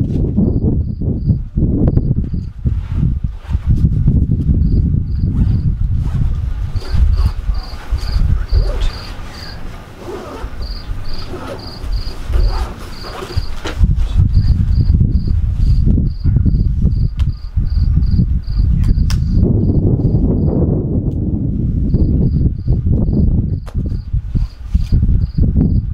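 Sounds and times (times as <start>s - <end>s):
crickets chirping: 0.4s - 2.6s, 4.6s - 5.8s, 6.8s - 20.6s, 21.8s - 25.9s
low rumble: 13.8s - 24.4s.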